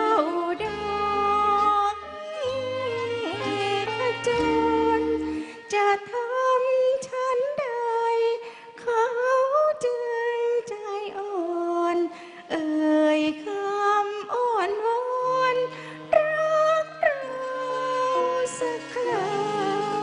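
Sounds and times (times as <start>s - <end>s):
dulcimer: 0.0s - 6.2s, 15.1s - 20.0s
woman singing: 0.0s - 20.0s.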